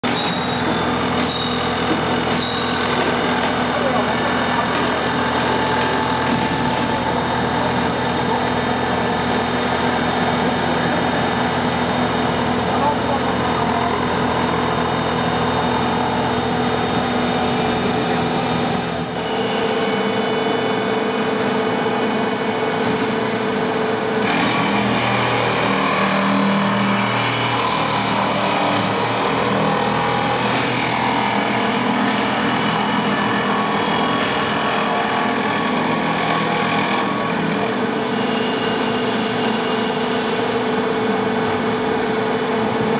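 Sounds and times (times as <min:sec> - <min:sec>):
grinding wheels on steel: 0:00.0 - 0:11.2.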